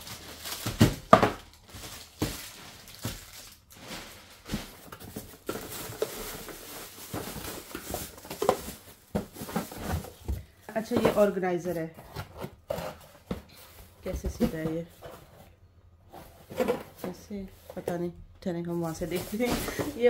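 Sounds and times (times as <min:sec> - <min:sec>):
packaging rustling: 0:00.0 - 0:11.4.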